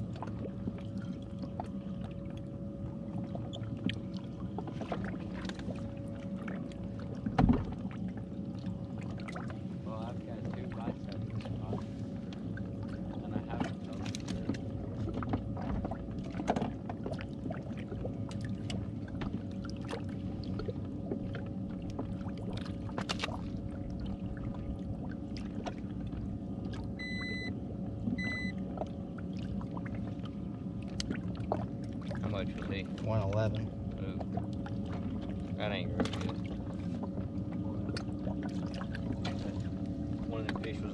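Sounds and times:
short electronic beeps: 27.0s - 27.5s, 28.2s - 28.6s.

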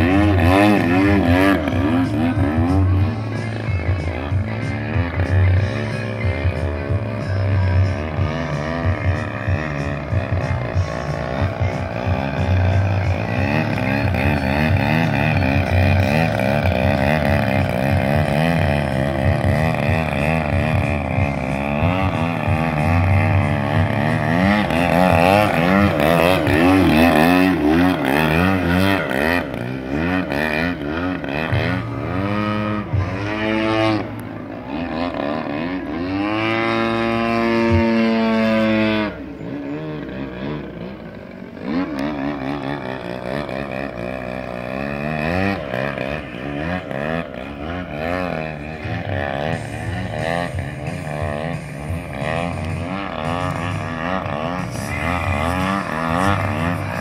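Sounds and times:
model plane engine revving: 0.0s - 57.0s.

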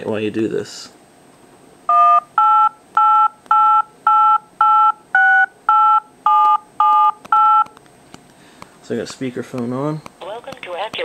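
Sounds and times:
touch-tone dialing beeps: 1.9s - 7.7s.

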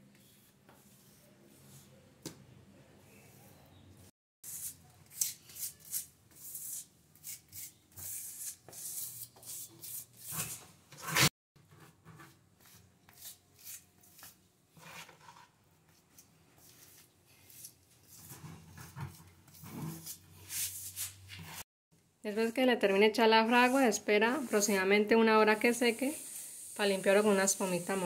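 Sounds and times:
grout float scraping tiles: 4.5s - 15.6s, 16.6s - 21.6s.

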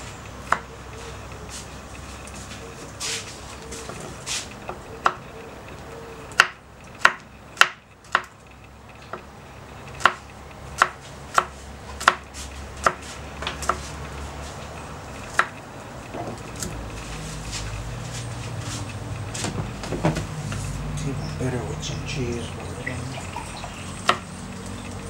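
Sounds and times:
knife chopping on wooden board: 6.4s - 8.3s, 10.0s - 10.2s, 10.8s - 12.2s, 12.8s - 13.9s, 15.3s - 15.5s, 24.0s - 24.2s.

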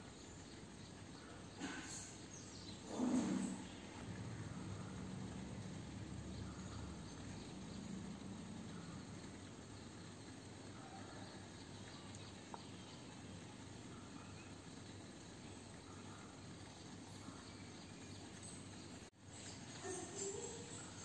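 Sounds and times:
low hum: 2.9s - 10.0s.

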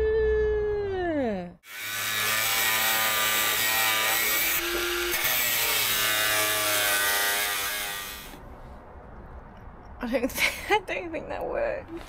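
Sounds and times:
angle grinder cutting metal: 1.6s - 8.4s.

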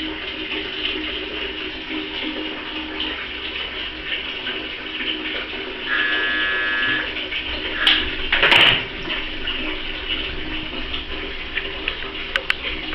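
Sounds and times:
toilet flush water running: 0.0s - 12.9s
brief steady tone: 5.9s - 7.1s.

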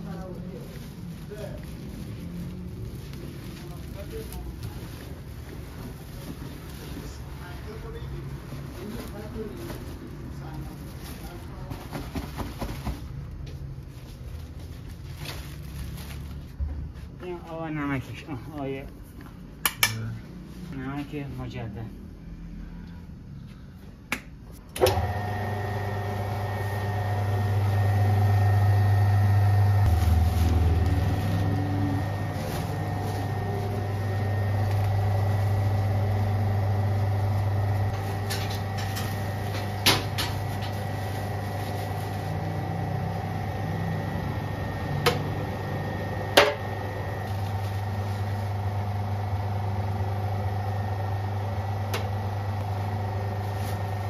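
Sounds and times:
mixer motor humming: 24.8s - 54.0s.

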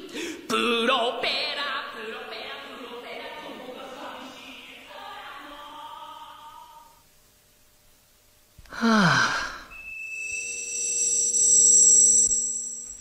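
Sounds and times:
man singing unaccompanied: 0.5s - 3.0s
loud falling sigh: 8.7s - 9.8s.

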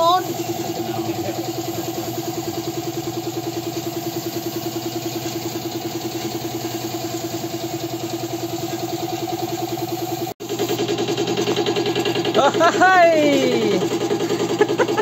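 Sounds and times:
air compressor pulsing: 0.0s - 15.0s.

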